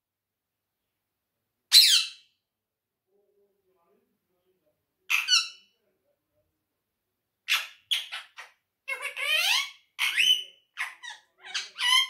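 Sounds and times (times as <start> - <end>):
parakeet calls and chatter: 5.1 - 5.7, 7.5 - 12.0.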